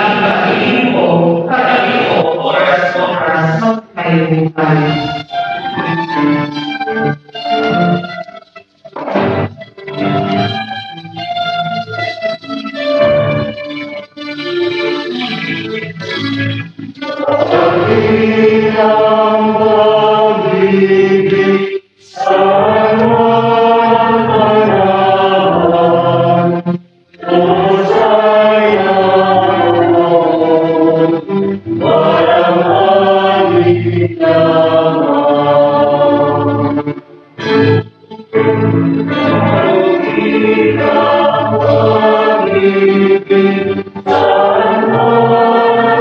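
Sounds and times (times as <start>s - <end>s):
slow hymn singing: 0.0s - 6.2s, 15.8s - 37.8s, 38.4s - 46.0s.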